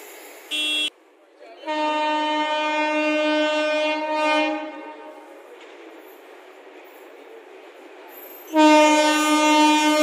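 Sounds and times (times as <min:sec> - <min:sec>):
train horn: 0:01.6 - 0:05.4, 0:08.5 - 0:10.0.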